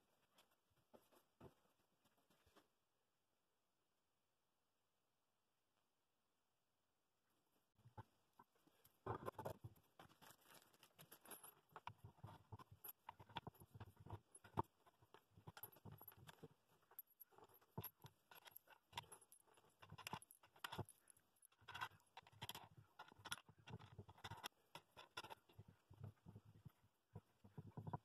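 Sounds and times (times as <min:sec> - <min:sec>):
metal washers clicking and tapping: 0:10.2 - 0:28.0.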